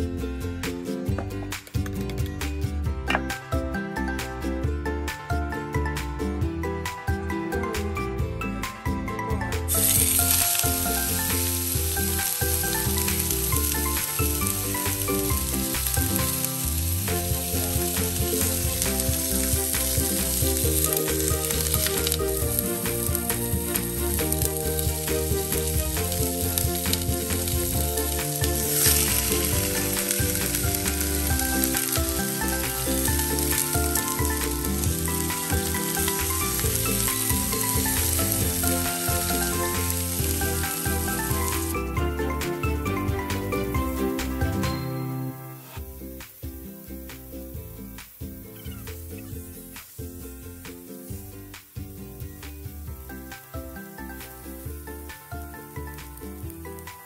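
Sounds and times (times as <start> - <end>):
meat sizzling in hot oil: 9.7 - 42.2, 45.7 - 57.0.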